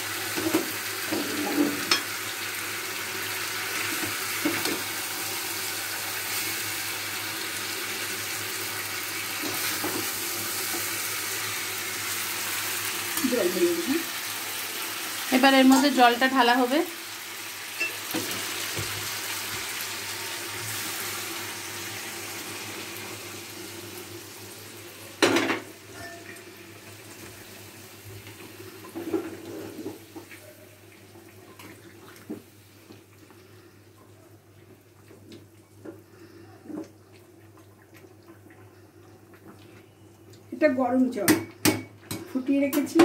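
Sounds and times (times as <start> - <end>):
water sizzling in a hot pan: 0.0 - 34.0, 34.8 - 43.0
metal spatula clanking on pan: 25.2 - 26.4.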